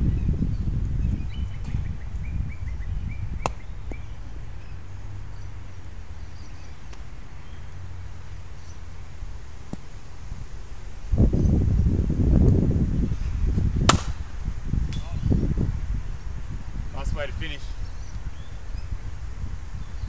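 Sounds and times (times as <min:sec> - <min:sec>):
bird chirping: 0:00.0 - 0:08.9
wind rumbling on microphone: 0:00.0 - 0:20.0.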